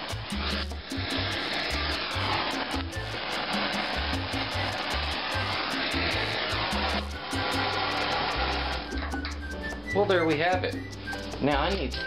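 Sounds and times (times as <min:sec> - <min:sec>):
kitchen torch flame roaring: 0:00.0 - 0:08.9.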